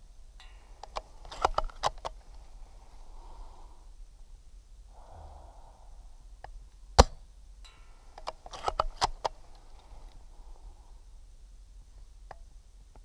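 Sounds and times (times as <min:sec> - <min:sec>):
rifle bolt clicking and rattling: 0:00.8 - 0:02.2, 0:08.2 - 0:10.2
airsoft rifle shot: 0:07.0 - 0:07.2.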